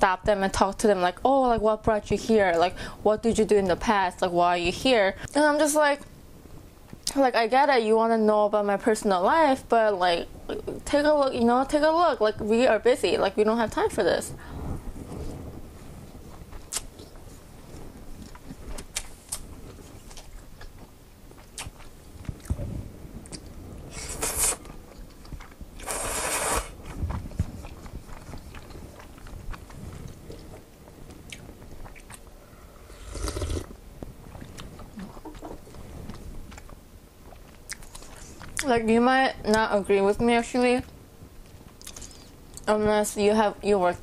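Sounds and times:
wet chewing with mouth clicks: 0:16.3 - 0:17.4, 0:18.1 - 0:38.7, 0:41.4 - 0:42.7
noodle slurps: 0:23.9 - 0:24.7, 0:25.8 - 0:26.8, 0:32.8 - 0:33.7.

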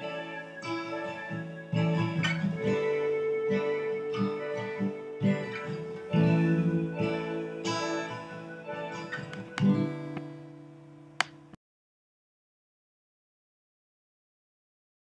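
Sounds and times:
plucked string chords: 0:00.0 - 0:11.6.

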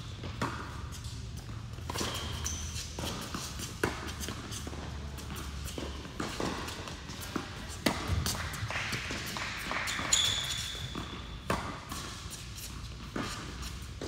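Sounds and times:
shoe squeaking on court: 0:00.1 - 0:08.5, 0:09.4 - 0:14.0
racket hitting tennis ball: 0:00.2 - 0:14.0
ball bouncing: 0:05.2 - 0:12.1.

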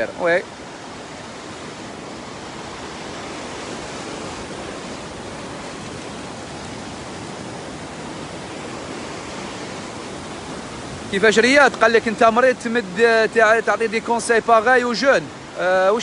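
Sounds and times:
sea surf on rocky shore: 0:00.0 - 0:16.0.

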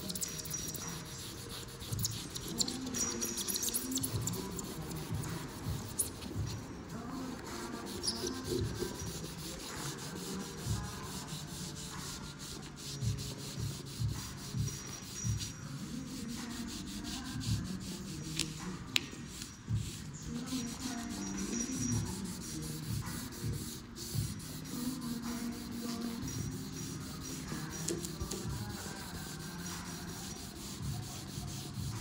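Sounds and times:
cloth rubbing on windshield: 0:19.8 - 0:32.0.

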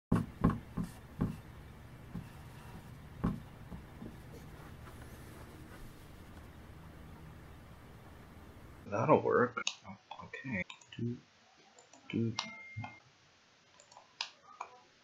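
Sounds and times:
marker writing on whiteboard: 0:00.1 - 0:06.5.

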